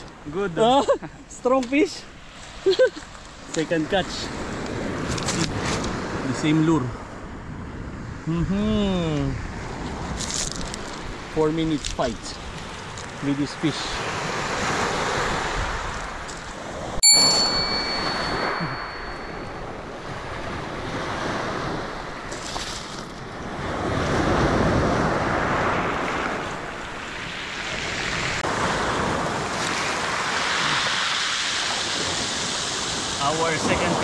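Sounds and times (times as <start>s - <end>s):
surf on pebble beach: 0.0s - 34.0s
notification bell ding: 17.0s - 19.7s.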